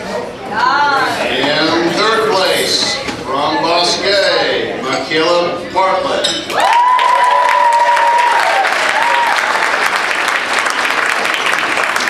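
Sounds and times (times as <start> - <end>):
audience applauding: 6.6 - 12.0.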